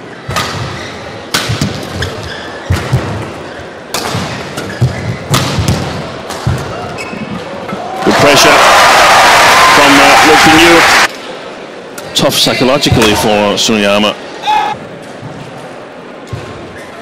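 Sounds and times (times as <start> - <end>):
shoe squeaks on court: 2.0 - 3.8, 6.9 - 7.4
murmur of crowd: 5.9 - 17.0.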